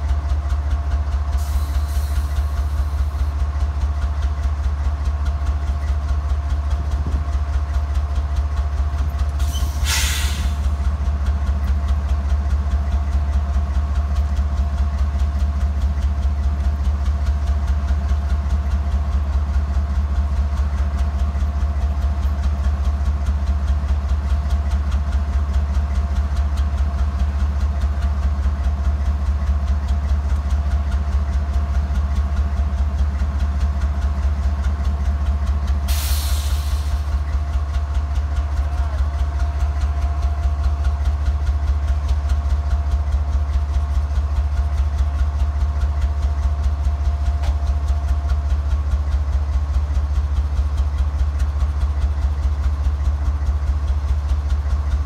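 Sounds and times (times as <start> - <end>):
diesel locomotive idling: 0.0 - 55.0
air hiss: 9.4 - 10.5.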